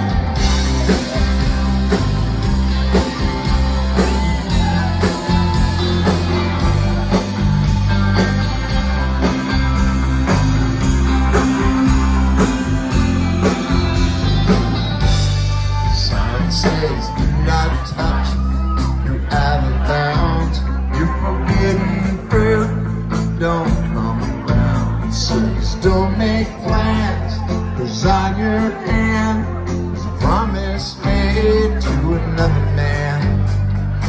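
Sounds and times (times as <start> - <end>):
country rock band playing: 0.0 - 34.0.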